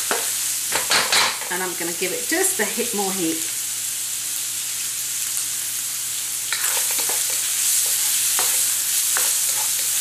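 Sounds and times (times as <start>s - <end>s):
shrimp sizzling in hot oil: 0.0s - 10.0s
spatula scraping a wok: 6.5s - 10.0s.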